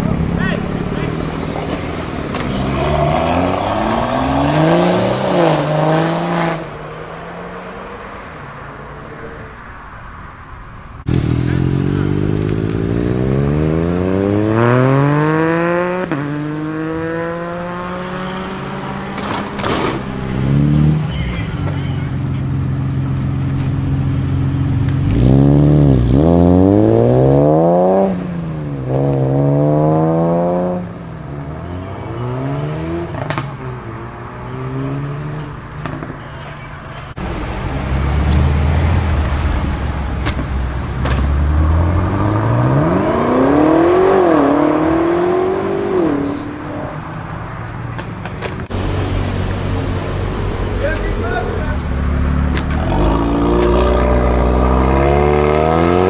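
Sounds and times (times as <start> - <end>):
car engine revving: 0.0 - 9.5, 11.0 - 36.1, 37.1 - 56.0.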